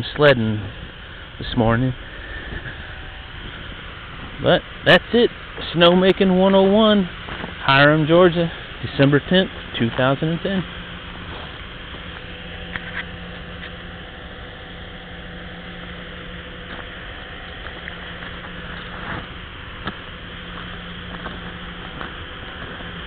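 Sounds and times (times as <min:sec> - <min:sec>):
faint pump hum: 0:00.0 - 0:23.0.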